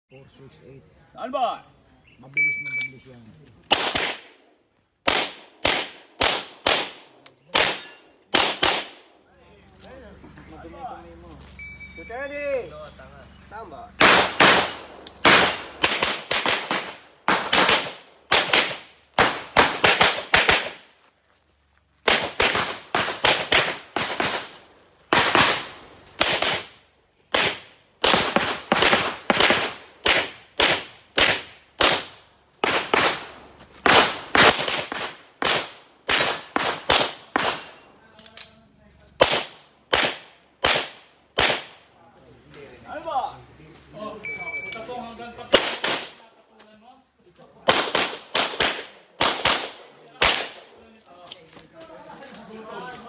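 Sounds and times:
pistol shots: 3.6s - 9.1s, 14.0s - 20.9s, 22.0s - 37.9s, 39.2s - 41.8s, 45.5s - 46.2s, 47.6s - 50.8s.

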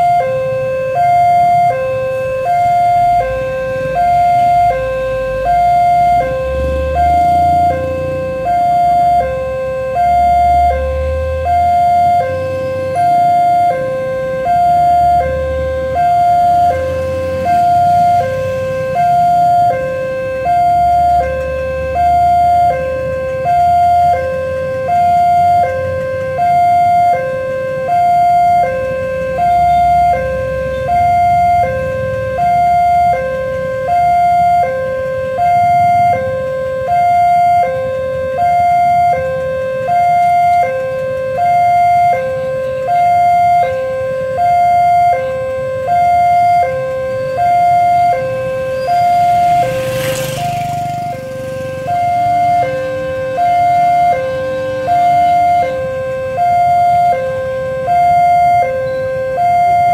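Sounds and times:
two-tone level crossing alarm: 0.0s - 59.9s
motorcycle passing: 3.9s - 27.1s, 45.8s - 58.3s.

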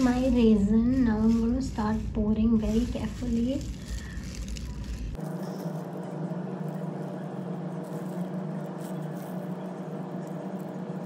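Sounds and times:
steady mechanical hum: 0.0s - 11.0s.

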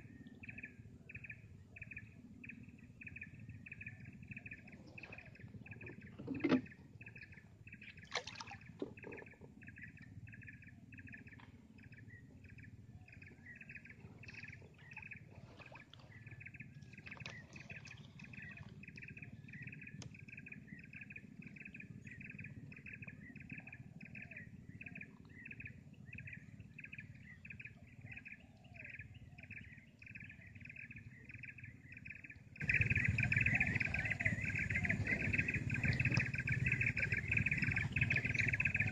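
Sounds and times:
low rumble: 32.6s - 38.9s.

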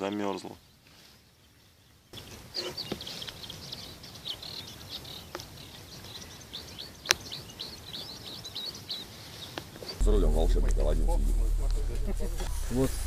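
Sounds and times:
small birds chirping: 0.0s - 10.0s
faint outdoor hiss: 0.0s - 13.0s.

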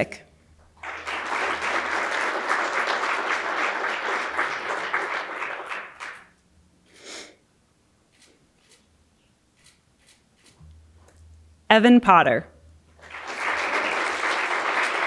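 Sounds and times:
audience clapping: 0.6s - 6.4s, 12.9s - 15.0s.

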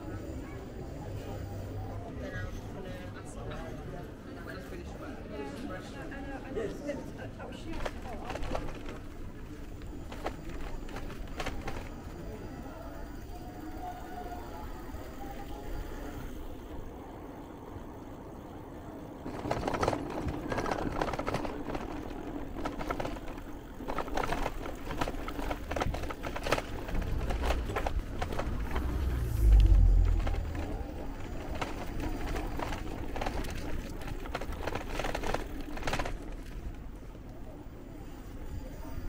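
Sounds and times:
bicycle rattling over cobblestones: 0.0s - 39.0s
heavy low rumble: 26.6s - 33.3s.

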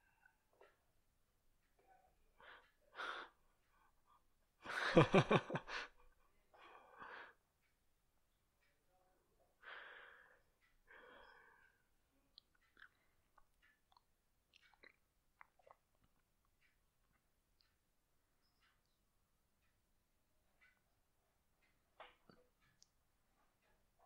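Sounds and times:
person breathing: 2.4s - 4.9s, 5.6s - 7.4s, 9.6s - 11.9s
person laughing: 4.6s - 6.0s.

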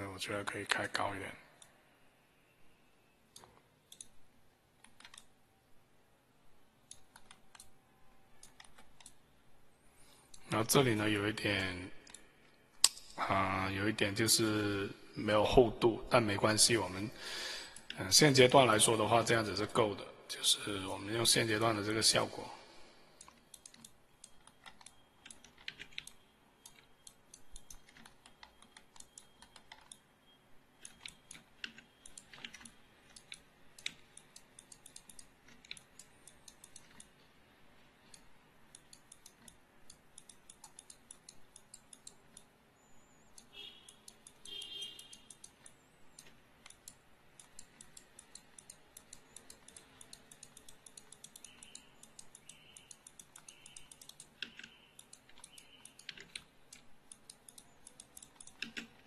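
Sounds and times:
keyboard and mouse clicking: 3.3s - 4.2s, 4.8s - 5.4s, 6.8s - 9.3s, 12.0s - 13.2s, 23.2s - 30.1s, 30.8s - 37.3s, 38.0s - 42.6s, 43.3s - 59.0s.

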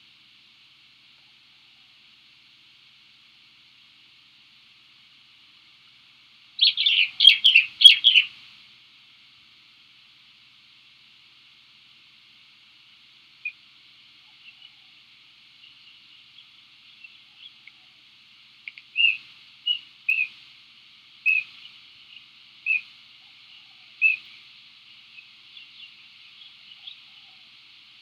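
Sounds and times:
bird chirping: 6.6s - 8.3s, 14.2s - 14.9s, 15.5s - 18.0s, 18.6s - 20.4s, 21.2s - 28.0s.

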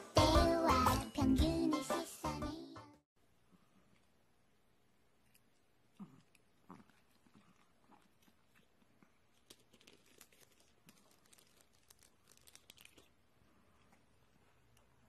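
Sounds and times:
puppies crunching treats: 6.0s - 15.0s.

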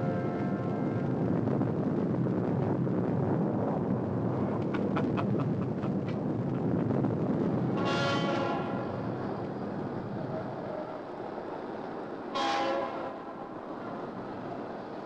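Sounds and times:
city traffic rumble: 0.0s - 15.0s
car horn: 12.4s - 13.2s.

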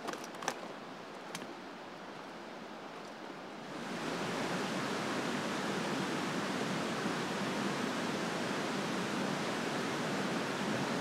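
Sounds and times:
waterfall rushing: 3.6s - 11.0s.

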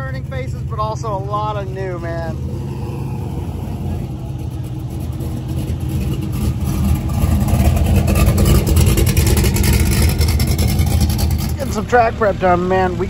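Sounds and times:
large vehicle engine running: 0.0s - 13.0s.

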